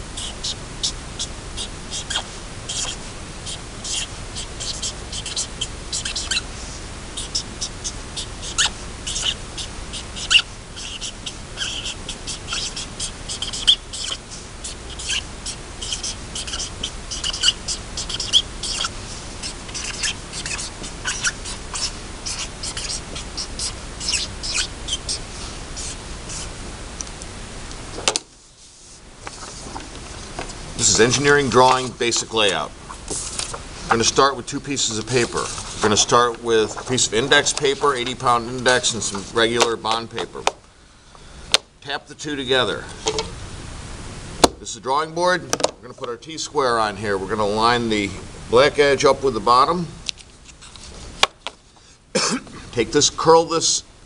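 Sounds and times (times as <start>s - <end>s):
marker squeaking on paper: 0.0s - 26.5s, 28.5s - 40.4s.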